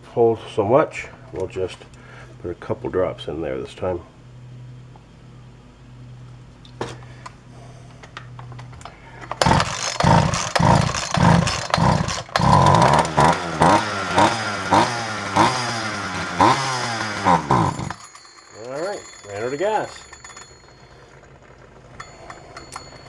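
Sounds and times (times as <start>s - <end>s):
chainsaw engine cranking and firing: 8.0s - 23.0s.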